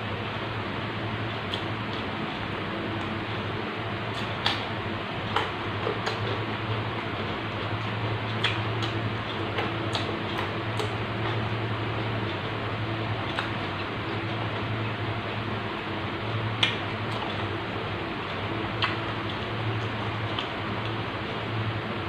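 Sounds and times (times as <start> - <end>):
low hum and hiss: 0.0 - 22.0
crunching raw vegetables: 1.2 - 14.8.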